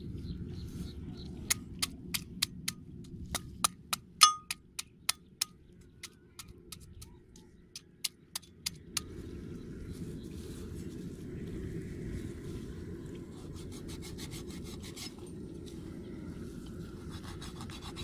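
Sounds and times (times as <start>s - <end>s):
machete striking hammer head: 4.2s - 4.6s.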